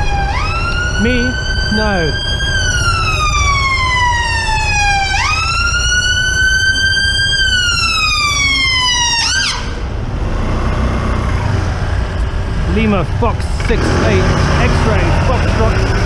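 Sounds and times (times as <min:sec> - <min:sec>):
ambulance siren wailing: 0:00.0 - 0:10.0
low traffic rumble: 0:00.0 - 0:16.0.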